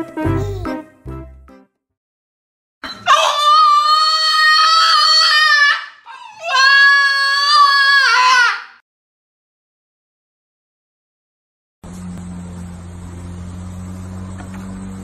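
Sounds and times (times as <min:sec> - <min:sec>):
small dog howling: 0:02.9 - 0:08.5.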